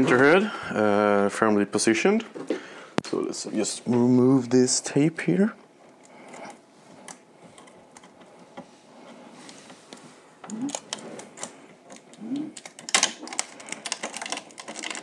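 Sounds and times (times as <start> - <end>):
tape peeling with clicks and crackles: 9.4 - 15.0.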